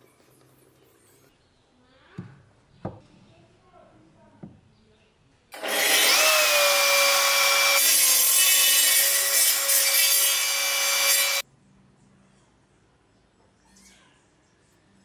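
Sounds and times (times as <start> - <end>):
table saw cutting wood: 5.6 - 11.4.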